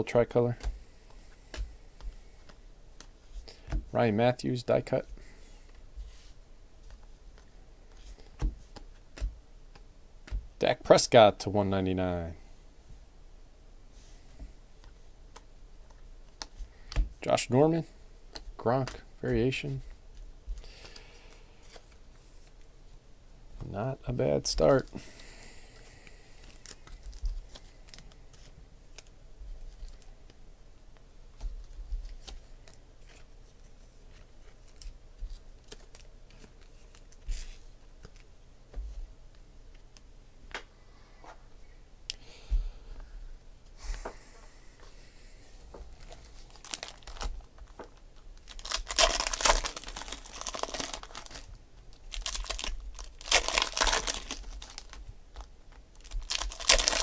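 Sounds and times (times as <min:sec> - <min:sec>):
foil packs tearing and crinkling: 0:46.0 - 0:47.5, 0:48.4 - 0:57.0.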